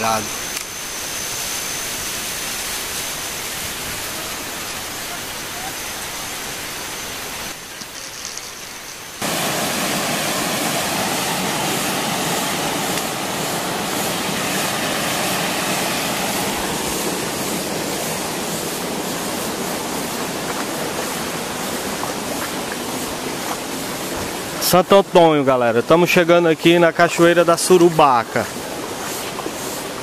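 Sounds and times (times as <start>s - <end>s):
stream running over stones: 2.8s - 30.0s.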